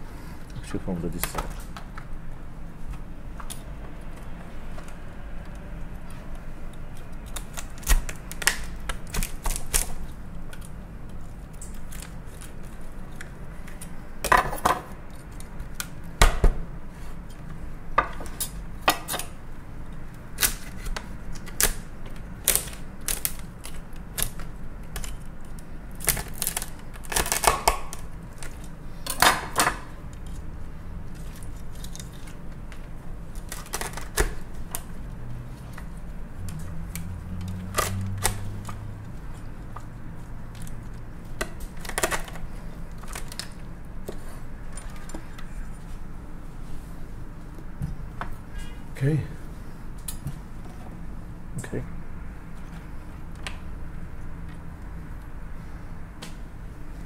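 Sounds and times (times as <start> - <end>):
knife cracking lobster shell: 22.4 - 28.5.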